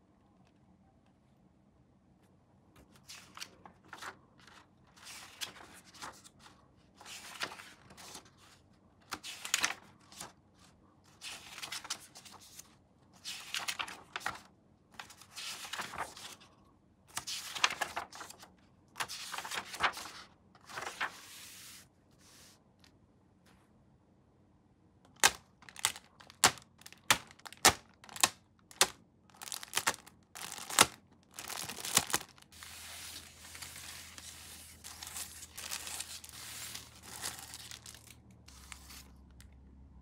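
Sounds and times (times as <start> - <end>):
plastic rustling and crinkling: 25.2 - 39.2.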